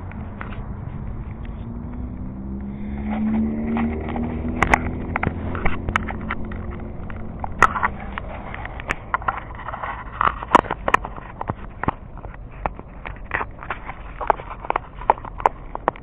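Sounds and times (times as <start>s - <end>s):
electric motor and propeller humming: 0.0s - 11.9s.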